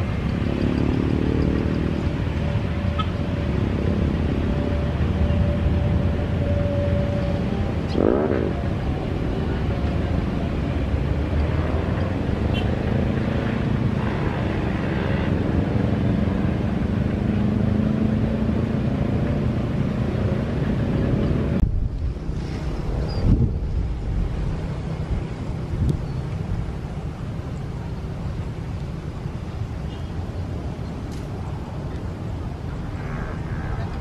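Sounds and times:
engines rumbling in traffic: 0:00.0 - 0:34.0
motorbike revving past: 0:07.5 - 0:09.6.

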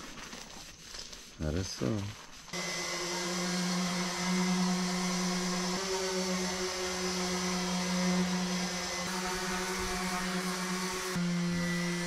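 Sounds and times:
electric motor humming: 0:02.6 - 0:12.0.

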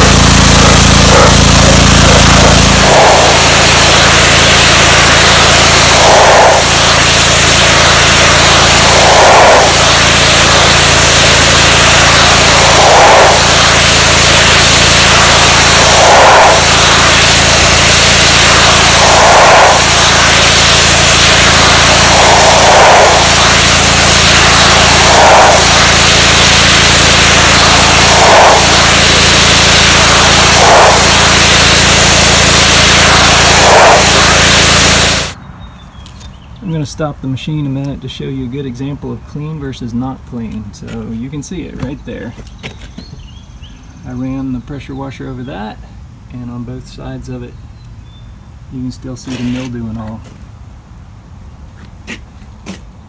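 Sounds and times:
pressure washer engine running: 0:00.0 - 0:35.4
water jet spraying brick: 0:00.0 - 0:35.4.

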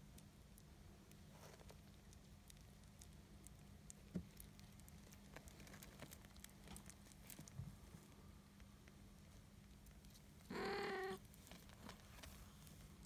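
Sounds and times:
kittens suckling wet clicks: 0:00.0 - 0:07.6.

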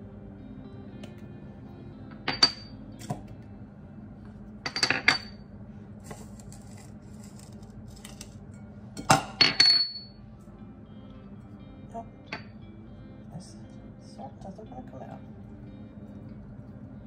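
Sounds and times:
ceramic ramekins clinking on bowl: 0:02.2 - 0:03.2, 0:04.6 - 0:05.4, 0:09.0 - 0:10.2.

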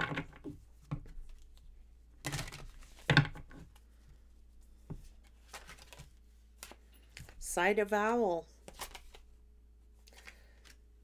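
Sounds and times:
cards being shuffled: 0:01.0 - 0:03.1, 0:04.9 - 0:07.4, 0:08.6 - 0:09.3, 0:10.0 - 0:10.8.

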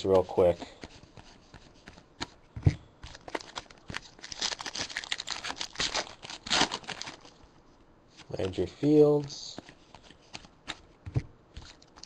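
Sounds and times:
foil wrapper tearing and crinkling: 0:03.1 - 0:07.4.

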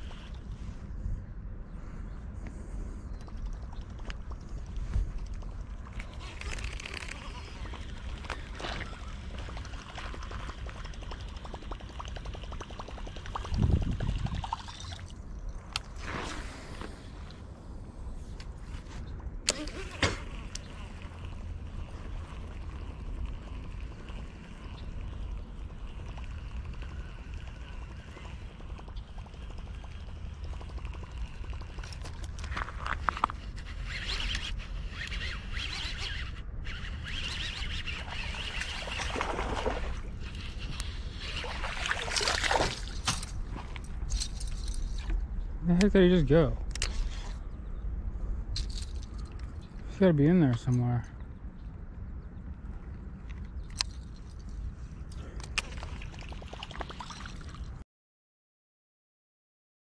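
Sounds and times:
water splashing and trickling: 0:03.2 - 0:16.0, 0:19.5 - 0:45.2, 0:53.7 - 0:57.8
birds chirping: 0:23.4 - 0:31.9.

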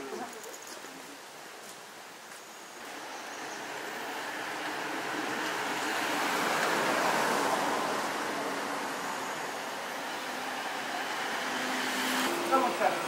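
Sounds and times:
car passing: 0:02.8 - 0:13.0.

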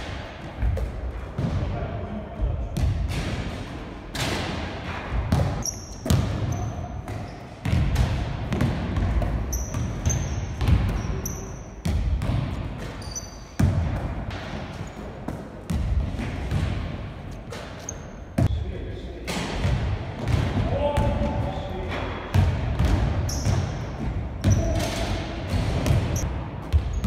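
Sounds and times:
basketball bouncing on wooden floor: 0:05.1 - 0:11.1
sneakers squeaking on floor: 0:05.3 - 0:07.9, 0:08.6 - 0:14.0, 0:14.6 - 0:15.8, 0:17.2 - 0:18.5, 0:23.1 - 0:25.0, 0:25.8 - 0:27.0.

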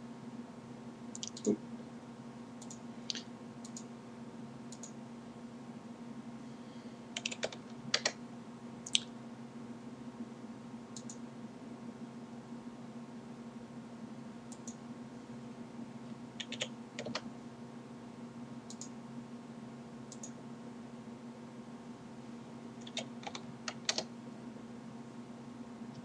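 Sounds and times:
steady low hum: 0:00.0 - 0:26.0
computer keyboard keystrokes: 0:07.2 - 0:08.2, 0:16.4 - 0:17.2, 0:22.8 - 0:24.1
mouse clicks: 0:11.0 - 0:11.2, 0:18.7 - 0:18.9.

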